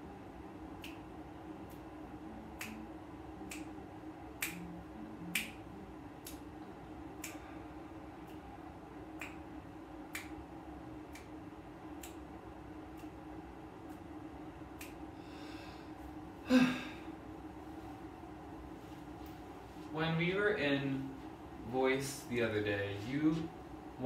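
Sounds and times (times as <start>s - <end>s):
low hum of room ventilation: 0.0s - 24.0s
finger snaps: 0.7s - 1.9s, 2.5s - 6.6s, 7.2s - 7.6s, 8.2s - 8.5s, 9.1s - 12.3s, 12.9s - 13.2s, 13.8s - 14.1s, 14.7s - 15.6s.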